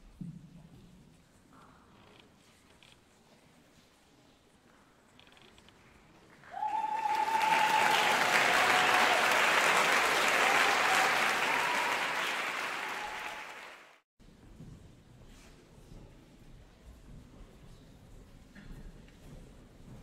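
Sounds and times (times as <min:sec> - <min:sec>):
audience applauding: 0:06.3 - 0:14.0.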